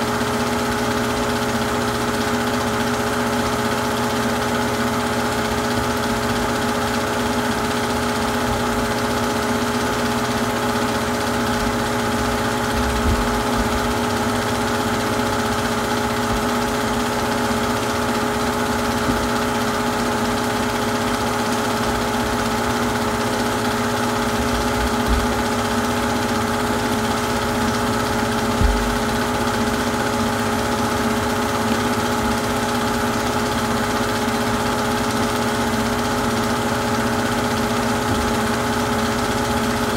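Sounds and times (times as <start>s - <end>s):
film projector motor whirring: 0.0s - 39.9s
faint low bumps: 28.6s - 29.1s.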